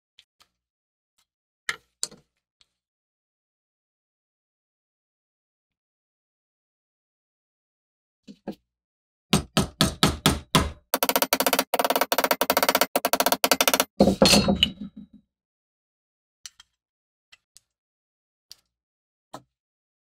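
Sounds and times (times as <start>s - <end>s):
small hammer tapping metal pin: 11.0s - 13.9s.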